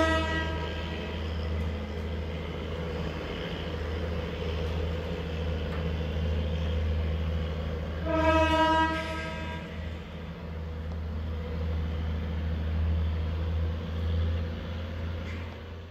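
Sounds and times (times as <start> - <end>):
rail car horn blowing: 0.0 - 1.0, 8.0 - 10.0
rail car engine rumbling: 0.0 - 15.9.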